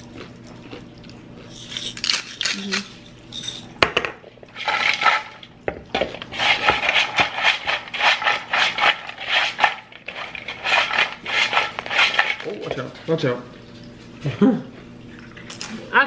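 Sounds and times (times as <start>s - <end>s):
chips rattling in plastic bowl: 4.5s - 5.5s, 6.2s - 12.7s.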